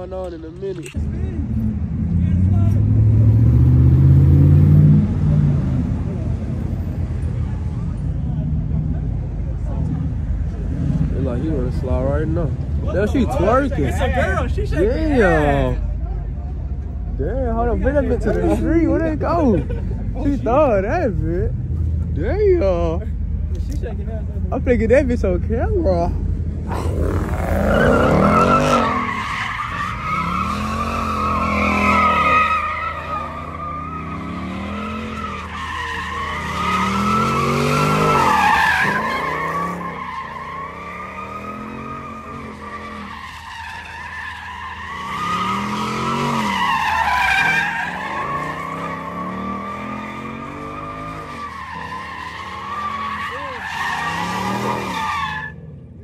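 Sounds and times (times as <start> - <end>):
car engine revving: 0.9 - 15.9, 24.6 - 43.8, 44.4 - 56.0
tyres squealing: 26.7 - 55.6.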